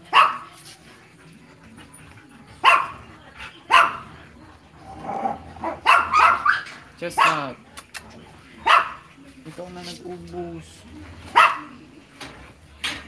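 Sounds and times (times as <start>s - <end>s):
small dogs barking: 0.0s - 0.6s, 2.5s - 4.2s, 5.0s - 7.6s, 8.6s - 9.1s, 11.2s - 11.8s.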